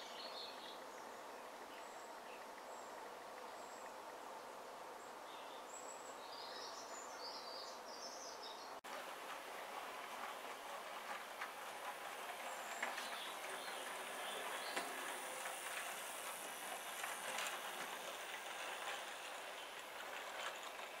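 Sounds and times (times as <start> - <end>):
model train wheels rolling on track: 8.9 - 21.0.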